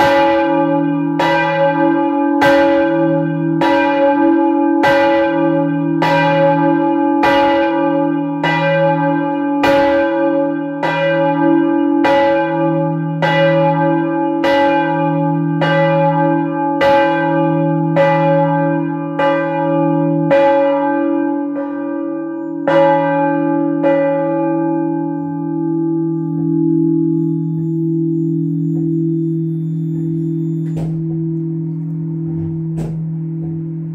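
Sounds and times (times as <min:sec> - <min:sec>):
church bell ringing: 0:00.0 - 0:33.9
bell humming: 0:21.3 - 0:33.9.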